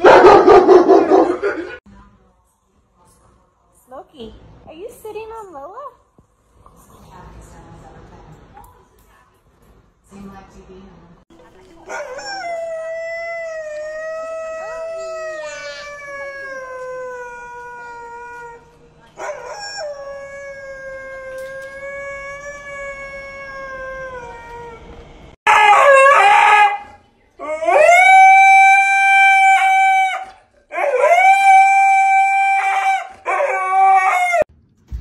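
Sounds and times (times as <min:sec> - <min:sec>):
husky howling: 0:11.9 - 0:34.5.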